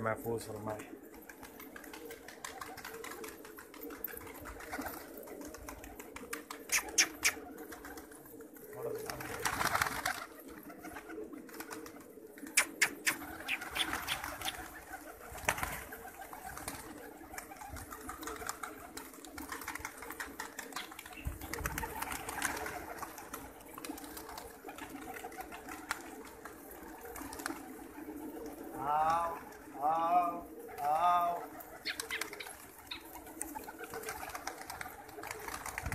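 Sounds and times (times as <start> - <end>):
pigeons cooing: 0.0 - 35.9
sharp clicks: 12.6 - 13.2.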